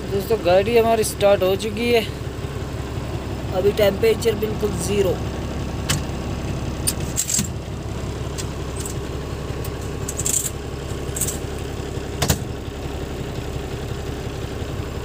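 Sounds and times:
diesel engine idling: 0.0s - 15.0s
jingling rattles: 9.7s - 11.6s.

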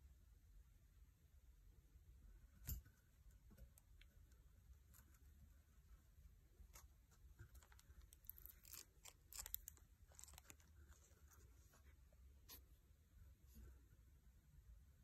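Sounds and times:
faint clicks and scratches: 2.6s - 14.0s.

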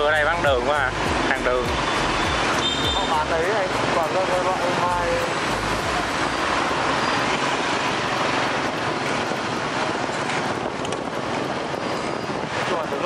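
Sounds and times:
motorbike traffic: 0.0s - 13.0s
wind on microphone: 5.3s - 13.0s.

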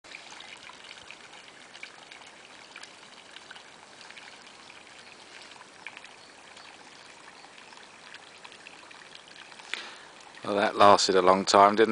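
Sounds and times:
water splashing: 0.0s - 11.9s
water jet hissing: 9.5s - 11.0s.

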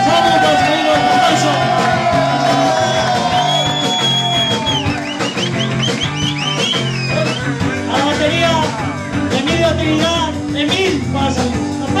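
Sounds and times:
rock and roll band playing: 0.0s - 12.0s.

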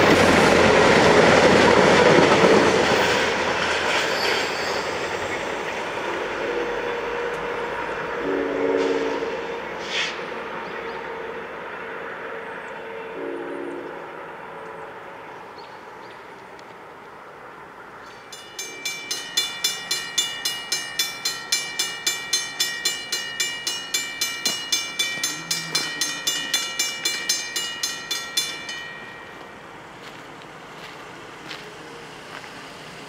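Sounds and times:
railroad crossing bell ringing: 0.0s - 8.3s, 18.1s - 31.6s.

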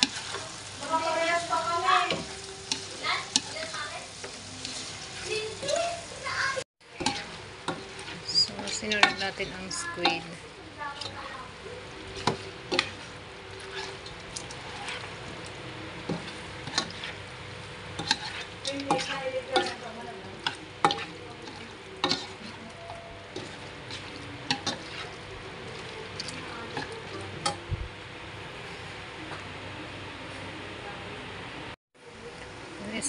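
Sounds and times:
spoon scraping frying pan: 0.0s - 5.8s, 6.9s - 11.2s, 12.0s - 15.4s, 16.0s - 17.2s, 17.9s - 27.6s
food sizzling: 0.0s - 33.0s.

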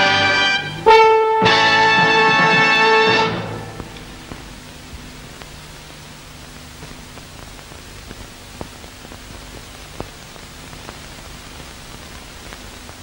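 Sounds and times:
faint low hum: 0.0s - 13.0s
tape hiss: 0.0s - 13.0s
clicks and crackles: 3.8s - 13.0s.

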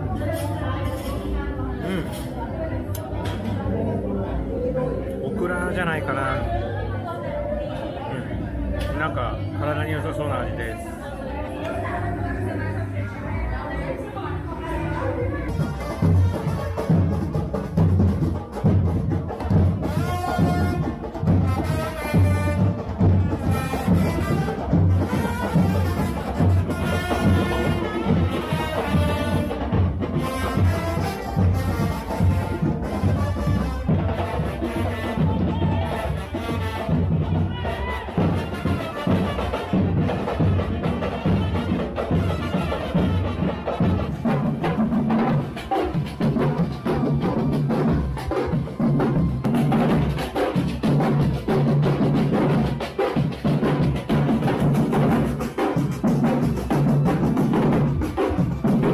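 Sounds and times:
light percussion: 0.0s - 58.9s
band melody: 8.3s - 58.9s
bass drums beating: 15.3s - 58.9s.

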